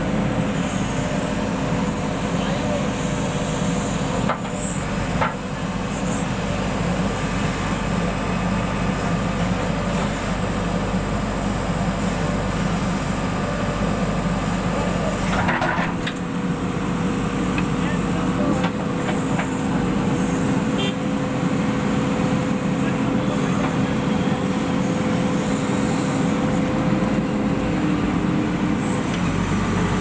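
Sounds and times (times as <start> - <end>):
diesel engine running: 0.0 - 30.0.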